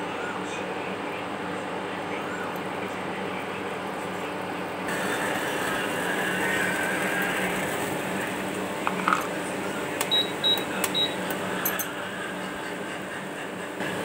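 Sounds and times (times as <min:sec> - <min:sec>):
water boiling in saucepan: 0:03.6 - 0:14.0.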